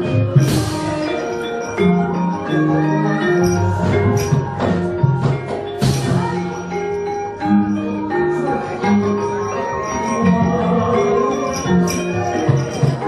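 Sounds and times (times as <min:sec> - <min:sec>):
metallophones striking ringing notes: 0:00.0 - 0:13.0.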